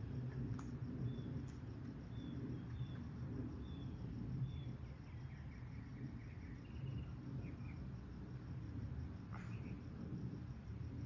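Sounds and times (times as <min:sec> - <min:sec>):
low background rumble: 0:00.0 - 0:11.0
small birds chirping: 0:00.6 - 0:07.9.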